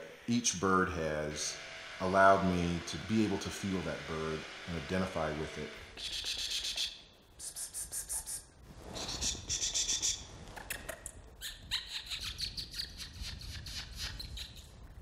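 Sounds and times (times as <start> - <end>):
birds high piping calls: 11.4 - 14.8.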